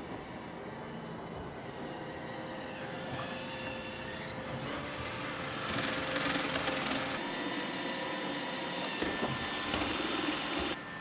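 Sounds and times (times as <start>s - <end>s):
robot vacuum motor whine: 0.2s - 11.0s.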